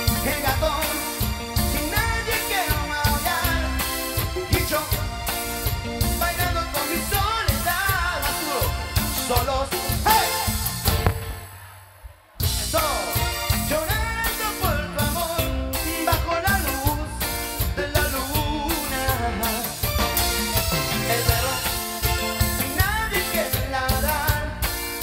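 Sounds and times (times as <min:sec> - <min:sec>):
man singing: 0:00.0 - 0:11.2, 0:12.4 - 0:25.0
live band playing: 0:00.0 - 0:25.0.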